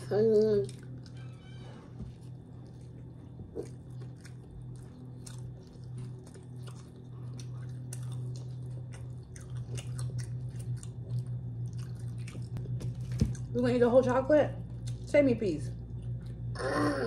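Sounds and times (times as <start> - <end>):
low hum: 0.0 - 17.0
chewing and biting food: 0.5 - 1.3, 2.1 - 13.6.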